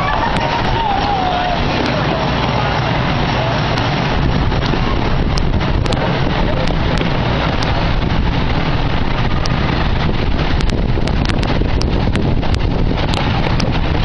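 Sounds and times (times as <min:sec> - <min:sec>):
miniature train rumbling: 0:00.0 - 0:14.0
wind buffeting microphone: 0:00.0 - 0:14.0
scattered ticks: 0:04.6 - 0:07.8, 0:10.3 - 0:13.9.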